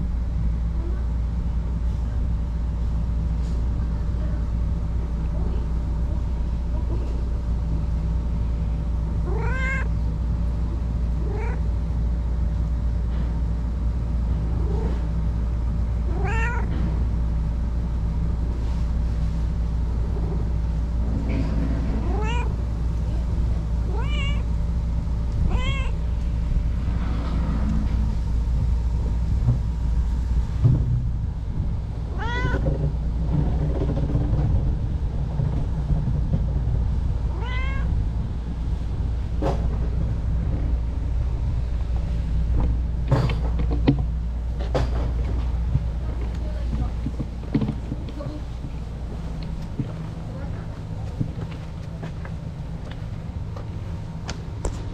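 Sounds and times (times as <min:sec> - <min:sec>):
low hum: 0:00.0 - 0:54.9
cat meowing: 0:09.2 - 0:10.0, 0:11.2 - 0:11.7, 0:16.1 - 0:16.7, 0:22.0 - 0:22.6, 0:23.9 - 0:24.5, 0:25.4 - 0:26.0, 0:32.1 - 0:32.6, 0:37.3 - 0:37.9.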